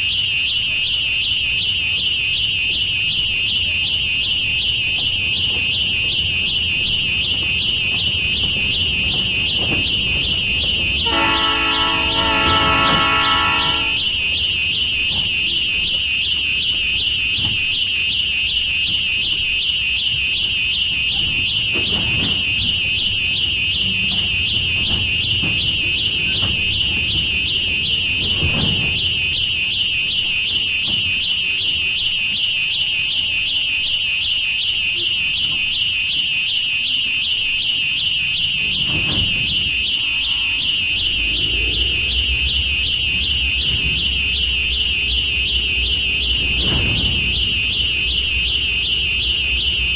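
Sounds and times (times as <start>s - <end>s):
high-pitched warbling alarm tone: 0.1s - 49.9s
low rumble: 40.3s - 48.8s.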